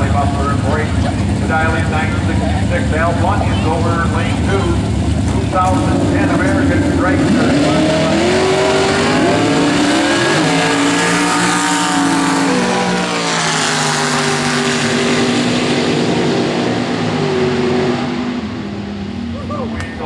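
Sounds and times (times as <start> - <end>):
drag racing cars at full throttle: 0.0 - 20.0.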